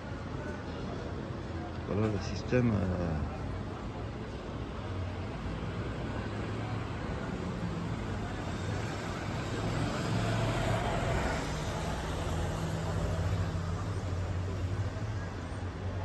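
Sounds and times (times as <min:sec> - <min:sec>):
low engine hum of traffic: 0:00.0 - 0:16.0.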